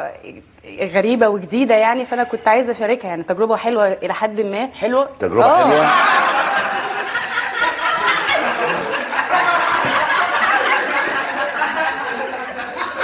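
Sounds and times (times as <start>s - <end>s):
audience laughing: 5.5s - 13.0s.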